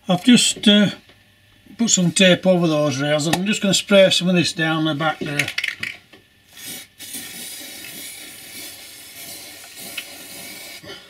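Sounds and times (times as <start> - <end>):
spray paint can hissing: 6.5 - 10.9.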